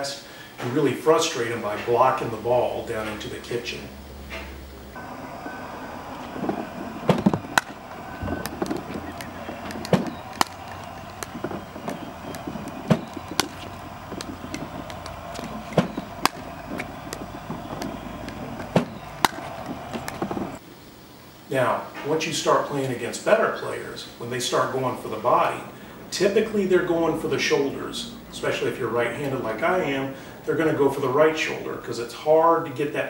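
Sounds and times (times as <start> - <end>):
paddles striking ball: 5.0 - 20.6
faint clicks: 6.2 - 20.6.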